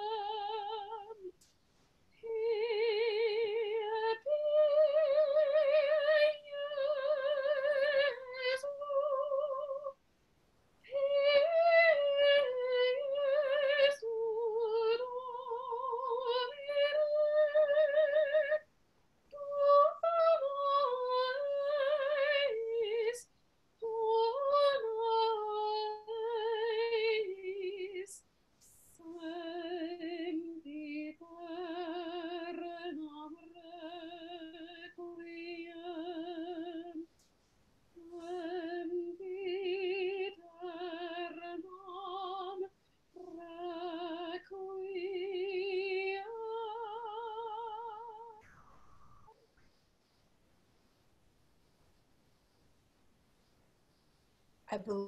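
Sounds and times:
woman singing unaccompanied: 0.0 - 1.4, 2.1 - 10.0, 10.8 - 18.7, 19.3 - 37.1, 38.0 - 48.5.

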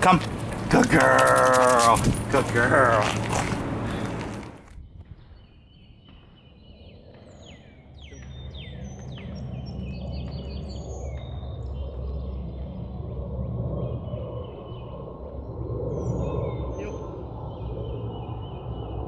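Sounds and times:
low outdoor rumble: 0.0 - 5.4
small birds chirping: 0.0 - 12.9, 13.8 - 19.0.

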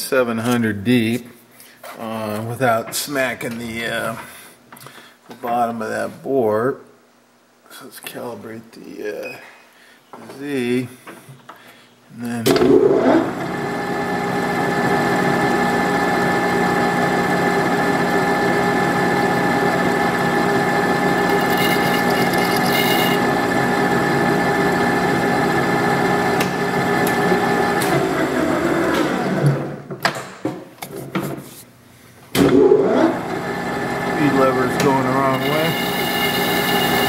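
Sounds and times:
lathe humming: 13.4 - 28.0, 33.1 - 37.0
boring bar cutting steel: 21.1 - 23.4, 34.3 - 37.0.

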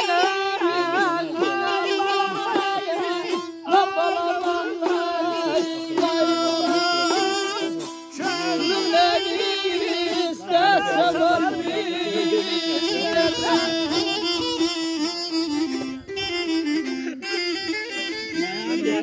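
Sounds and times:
folk melody with slides and trills: 0.0 - 19.0.

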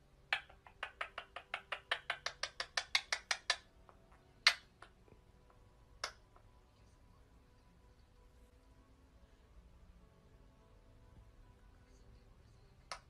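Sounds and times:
parakeet making sharp clicks: 0.3 - 6.5.

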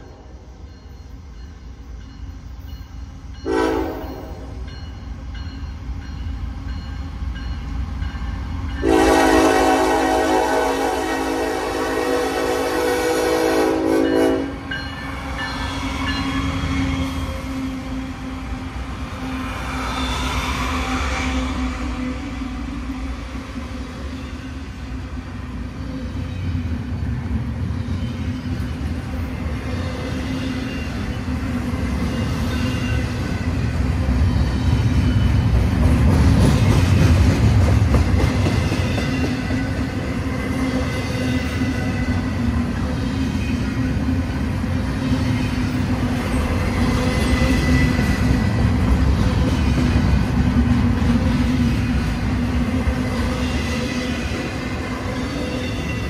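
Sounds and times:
freight train rolling rumble: 0.0 - 56.0
locomotive horn chord: 3.4 - 4.3, 8.8 - 14.6.

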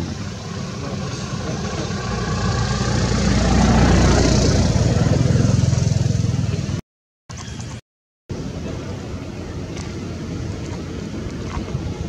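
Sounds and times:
engine throbbing: 0.0 - 6.8.

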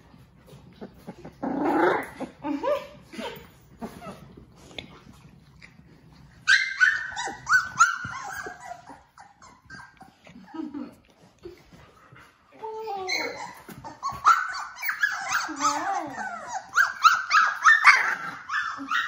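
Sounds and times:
puppy growl: 0.4 - 12.0, 13.0 - 19.0
puppy yips and whimpers: 6.4 - 10.1, 12.9 - 19.0.

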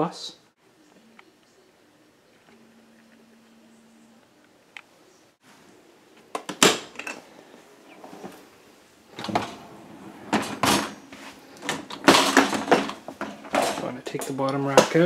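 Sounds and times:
dish rack rattling: 11.6 - 15.0.

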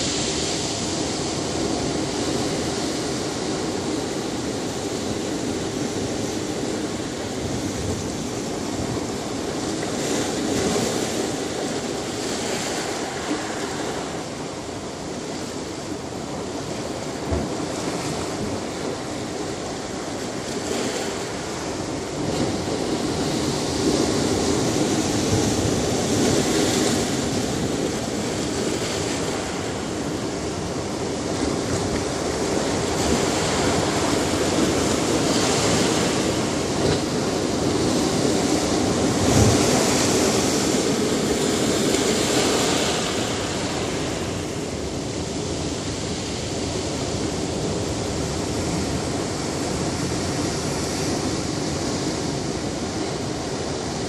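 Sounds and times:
ocean surf breaking over rocks: 0.0 - 54.0.

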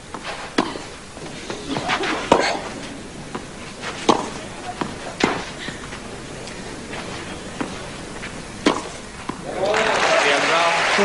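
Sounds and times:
tennis ball racket hits: 1.7 - 9.7.

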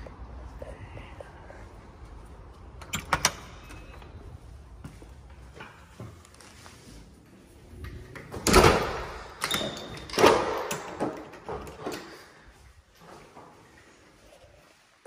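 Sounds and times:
loud knocks echoing in room: 8.3 - 9.5, 10.1 - 12.0.

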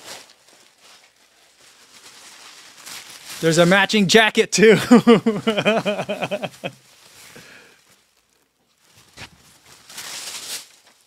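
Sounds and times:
man laughing: 3.4 - 6.8
jacket fabric rustling: 4.9 - 7.4.

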